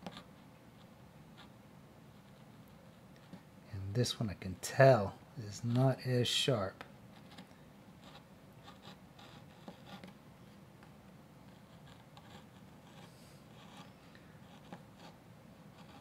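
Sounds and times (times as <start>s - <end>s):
person talking: 3.7s - 6.8s
gouge scratching wood: 15.8s - 16.0s.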